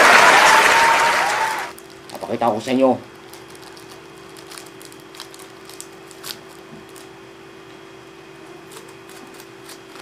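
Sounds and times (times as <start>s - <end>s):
paper wrapper crinkling: 1.7s - 7.2s, 8.7s - 10.0s.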